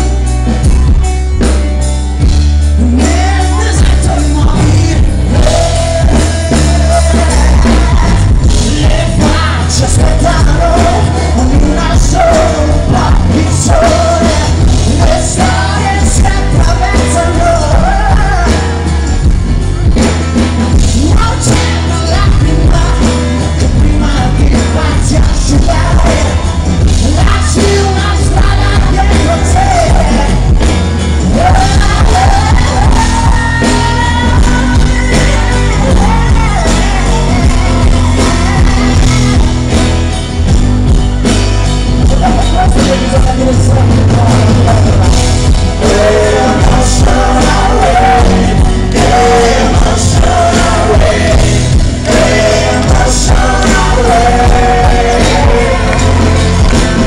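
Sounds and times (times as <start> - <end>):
pop-rock band playing: 0.0 - 57.0
man singing live: 2.6 - 41.0, 41.9 - 57.0.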